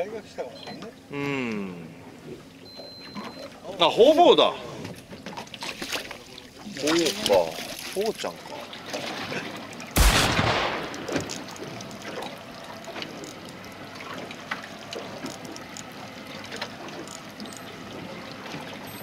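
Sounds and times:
water lapping against boat hull: 1.8s - 19.0s
small ticks and knocks: 10.9s - 17.8s.

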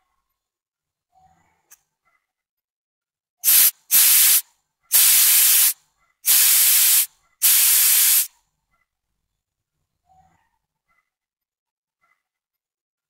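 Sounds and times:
compressed air hissing: 3.4s - 8.3s.

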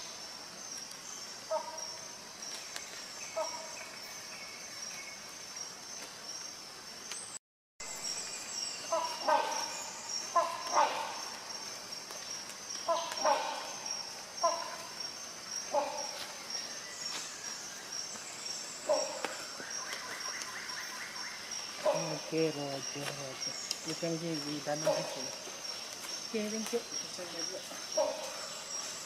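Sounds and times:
hornbill calling: 3.3s - 3.8s, 8.8s - 11.7s, 12.8s - 16.8s, 18.8s - 29.0s.

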